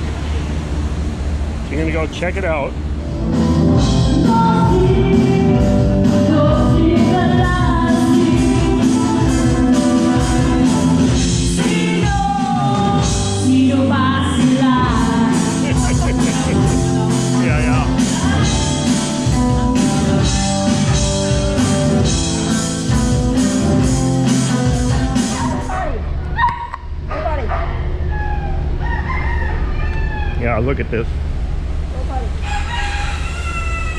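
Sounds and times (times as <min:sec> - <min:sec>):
electric guitar: 0:02.8 - 0:26.4
person singing: 0:04.0 - 0:20.0
steady beat: 0:14.4 - 0:25.6.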